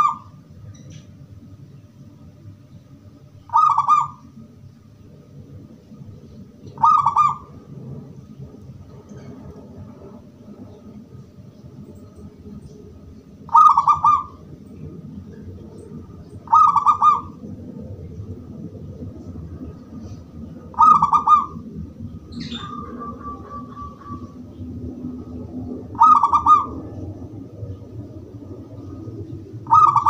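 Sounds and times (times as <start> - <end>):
dove cooing: 0.0 - 0.4, 3.5 - 4.3, 6.8 - 7.6, 13.5 - 15.5, 16.4 - 17.4, 20.4 - 27.3, 29.6 - 30.0
bird chirp: 0.0 - 1.9, 22.2 - 24.7.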